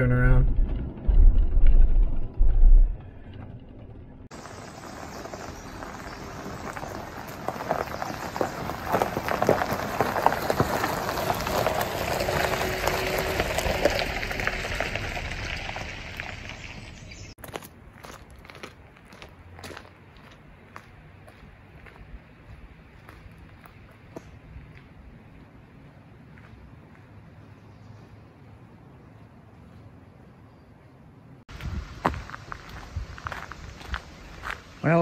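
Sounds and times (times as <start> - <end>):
tyres crunching over gravel: 4.3 - 27.6, 31.5 - 35.0.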